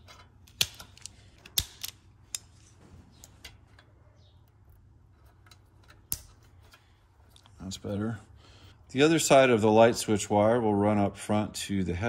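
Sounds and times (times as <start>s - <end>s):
wire handling ticks: 0.0s - 7.6s
wire strippers clicking: 0.0s - 7.6s.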